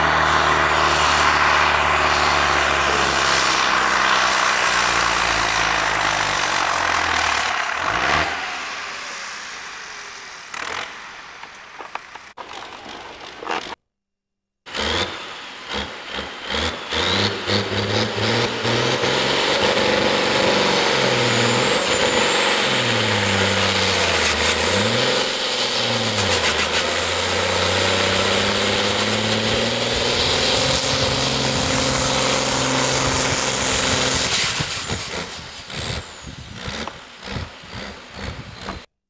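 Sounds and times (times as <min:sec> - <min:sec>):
high whine: 0:00.0 - 0:12.2
tractor engine under load: 0:00.0 - 0:13.8, 0:14.7 - 0:38.9.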